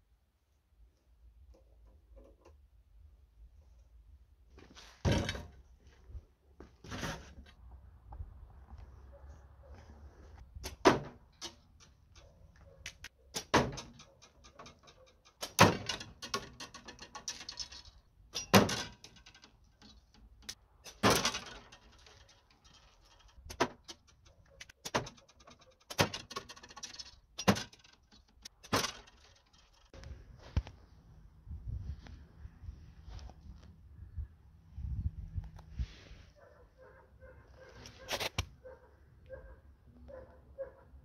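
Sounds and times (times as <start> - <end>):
arrows thudding into wood: 5.0 - 5.6, 10.5 - 11.9, 12.9 - 14.0, 14.6 - 17.0, 18.3 - 19.2, 20.8 - 21.8, 23.4 - 24.0, 24.7 - 25.2, 25.9 - 29.9
arrows hitting plastic jug: 10.6 - 11.6, 13.4 - 14.0, 15.4 - 16.4.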